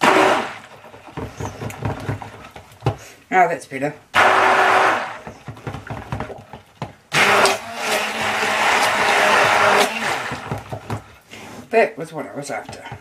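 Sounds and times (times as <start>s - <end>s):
stick blender running: 0.0s - 0.7s, 4.2s - 6.0s, 7.1s - 11.0s.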